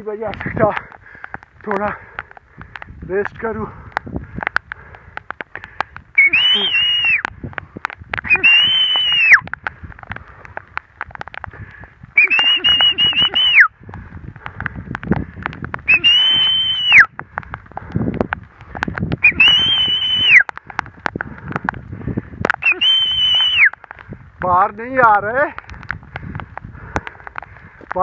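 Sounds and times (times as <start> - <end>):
raindrops pattering: 0.0 - 28.0
man whistling: 6.2 - 7.2, 8.3 - 9.4, 12.2 - 13.7, 15.9 - 17.1, 19.2 - 20.4, 22.6 - 23.7.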